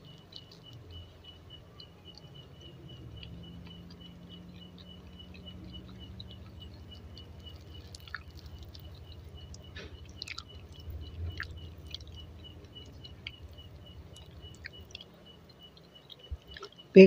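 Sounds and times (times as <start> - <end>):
chewing soft food: 0.0 - 17.0
wet mouth clicks: 3.2 - 15.1.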